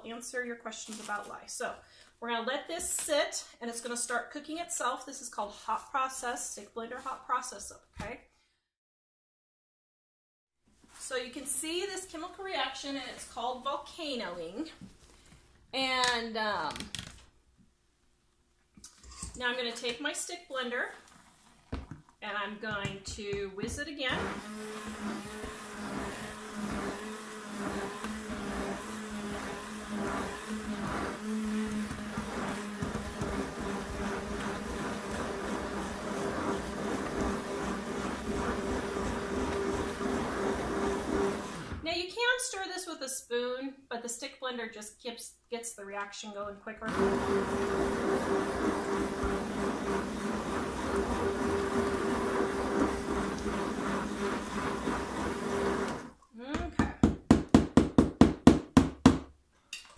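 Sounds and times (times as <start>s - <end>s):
stick blender motor hum: 24.0s - 41.8s, 46.9s - 56.2s.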